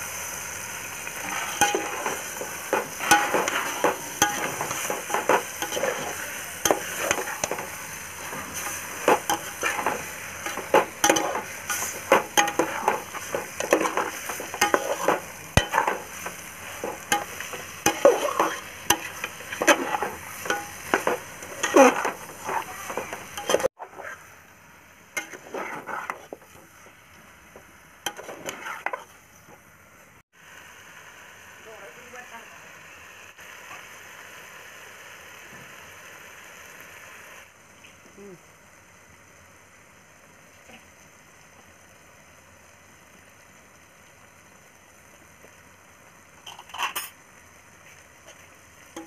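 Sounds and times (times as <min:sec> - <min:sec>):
frying sizzle: 0:00.0 - 0:49.0
metal spoon scraping a pot: 0:01.2 - 0:24.2, 0:25.2 - 0:26.6, 0:28.1 - 0:29.2.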